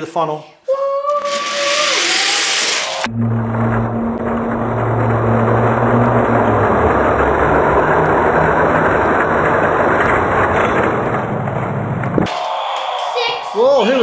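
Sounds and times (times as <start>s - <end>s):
racing engine roar: 1.4s - 12.3s.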